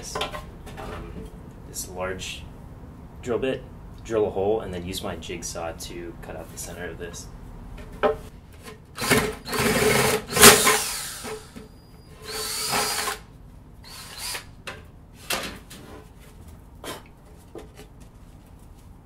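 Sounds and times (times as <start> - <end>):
drill boring through wood: 9.0 - 13.2, 13.8 - 14.5.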